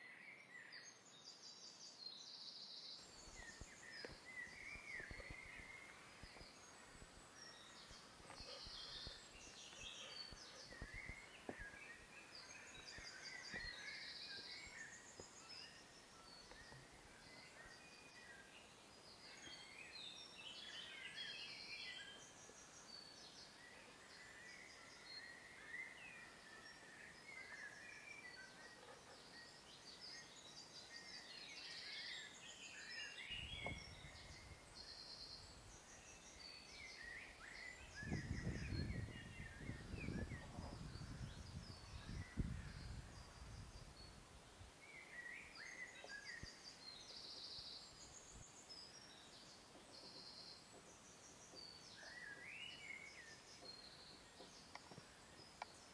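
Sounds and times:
small birds chirping and trilling: 0:00.0 - 0:55.9
low rumbling on microphone: 0:38.0 - 0:43.8.

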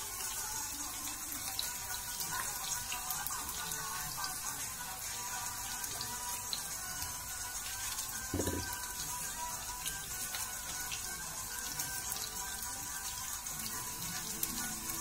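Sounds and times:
onions sizzling in hot oil: 0:00.0 - 0:15.0
dull thump: 0:08.4 - 0:08.7.

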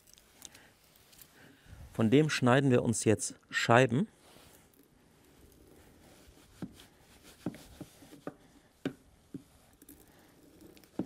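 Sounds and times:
low room noise: 0:00.0 - 0:11.0.

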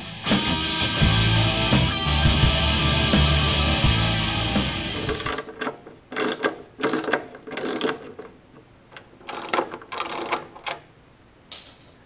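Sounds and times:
heavy metal guitar music: 0:00.0 - 0:05.3.

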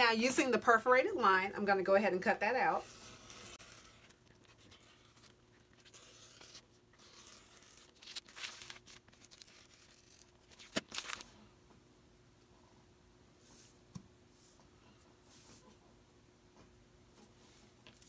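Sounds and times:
rotary cutter slicing paper: 0:02.8 - 0:08.9.

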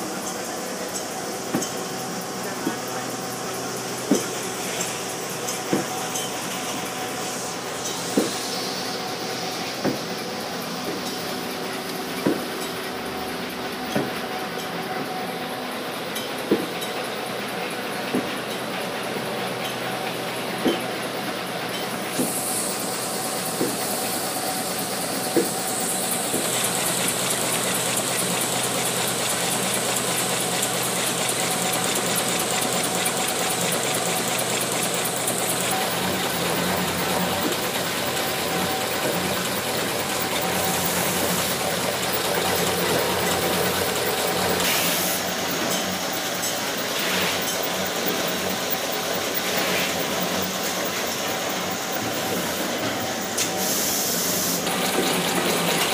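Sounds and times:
machine droning with hiss: 0:00.0 - 0:55.9.

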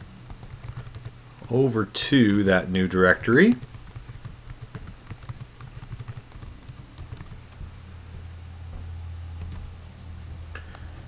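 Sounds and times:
low steady hum: 0:00.0 - 0:11.0
typing on a computer keyboard: 0:00.2 - 0:01.6, 0:03.1 - 0:07.7, 0:09.4 - 0:09.7.

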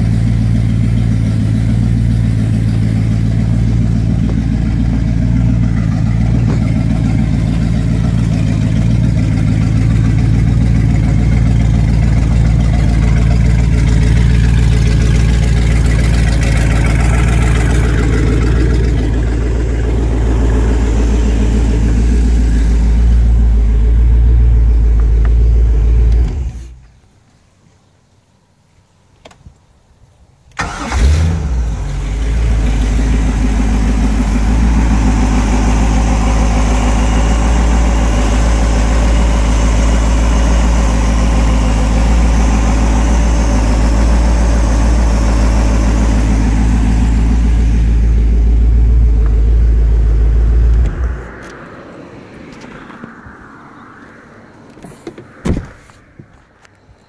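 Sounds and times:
boat engine idling: 0:00.0 - 0:26.8, 0:31.8 - 0:51.3.

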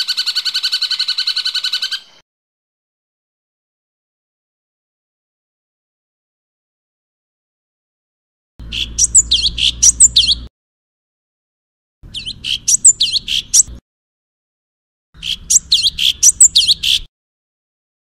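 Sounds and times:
songbird whistling: 0:00.0 - 0:02.2, 0:08.6 - 0:10.5, 0:12.1 - 0:13.8, 0:15.2 - 0:17.1.

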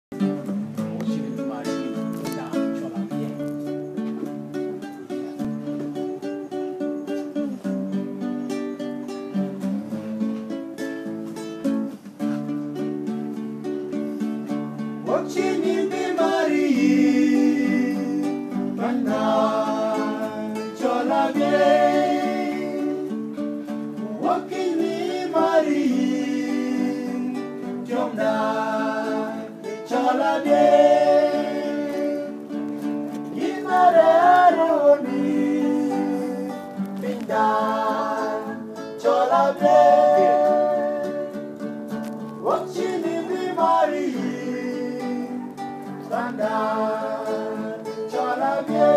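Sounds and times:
acoustic guitar chords: 0:00.1 - 0:48.9
men singing: 0:15.0 - 0:41.6, 0:42.4 - 0:48.9.

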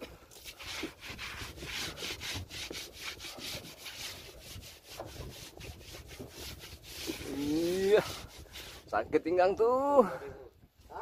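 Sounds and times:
rapid scraping strokes: 0:00.3 - 0:09.0.

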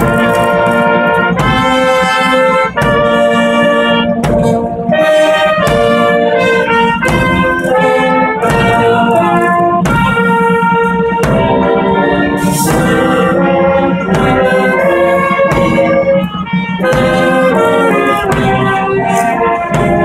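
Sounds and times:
marching band playing slow tune: 0:00.0 - 0:20.0.

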